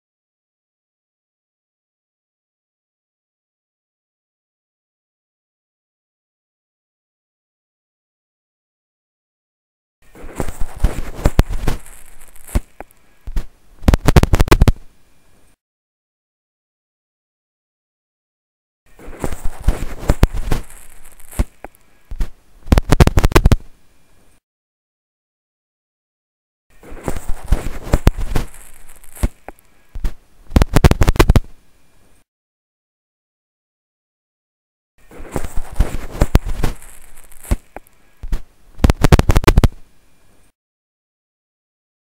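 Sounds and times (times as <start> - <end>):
crackling: 10.1 - 15.6, 18.9 - 24.4, 26.8 - 32.2, 35.1 - 39.8.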